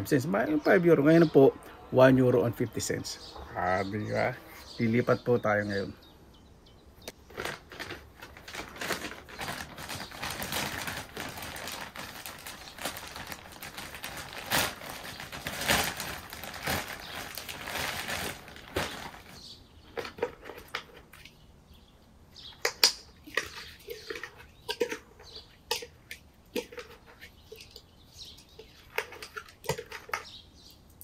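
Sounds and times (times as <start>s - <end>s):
rustling and crinkling: 7.0s - 30.7s.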